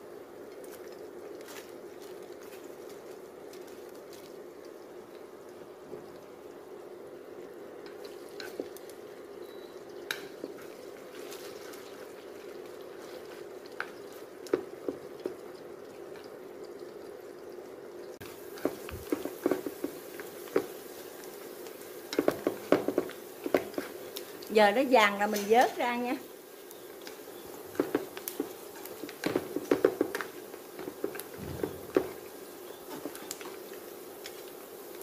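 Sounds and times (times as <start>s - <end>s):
meat frying in hot oil: 0.0s - 35.0s.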